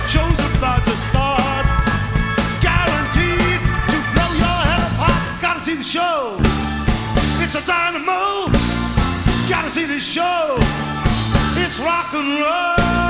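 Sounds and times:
sliding lead line: 0.0s - 5.7s
electric bass: 0.0s - 5.8s, 6.4s - 7.8s, 8.5s - 10.0s, 10.6s - 12.0s, 12.8s - 13.0s
drum kit: 0.0s - 12.2s, 12.8s - 13.0s
keyboards: 0.0s - 13.0s.

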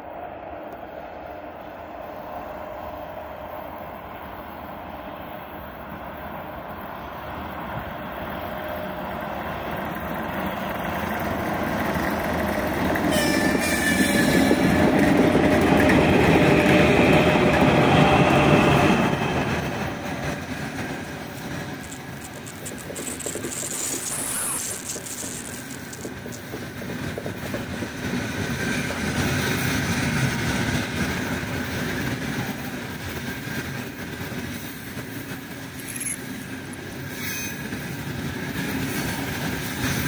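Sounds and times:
electric locomotive passing: 0.0s - 40.0s
freight wagons rolling: 20.8s - 27.6s
high squeal: 22.4s - 26.0s, 37.1s - 37.7s.

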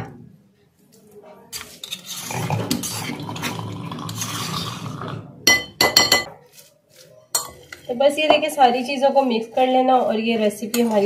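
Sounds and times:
spoon scraping stone mortar: 1.5s - 5.1s, 6.1s - 11.0s
spoon clinking on glass bowl: 5.5s - 6.3s, 7.4s - 7.8s.

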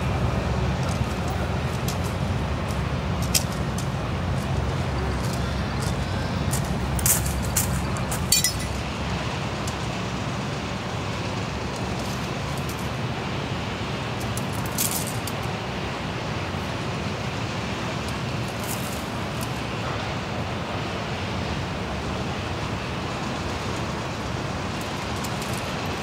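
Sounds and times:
road vehicle rumble: 0.0s - 26.0s
metallic clinks and jingles: 7.0s - 8.8s, 14.5s - 15.4s.

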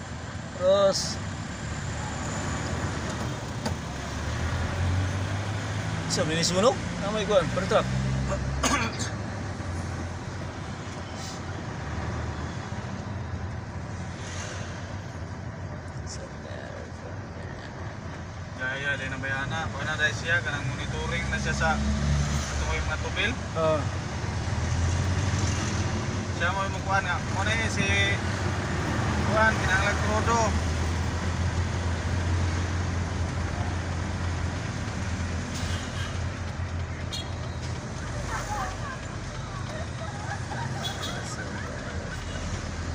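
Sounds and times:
tyre and road noise: 0.0s - 42.9s
vehicle engine drone: 0.0s - 42.9s
vehicle engine running: 26.0s - 42.9s.

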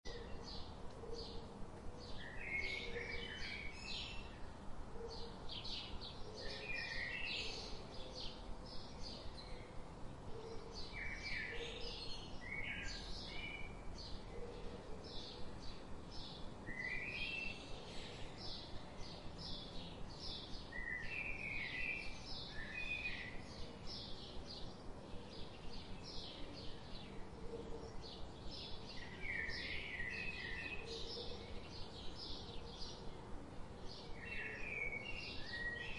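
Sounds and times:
songbirds chirping: 0.1s - 35.9s.

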